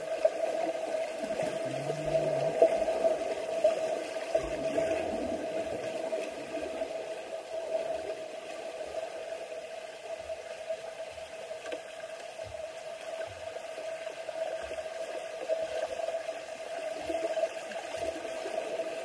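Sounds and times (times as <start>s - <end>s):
muffled underwater splashing: 0.0s - 11.5s.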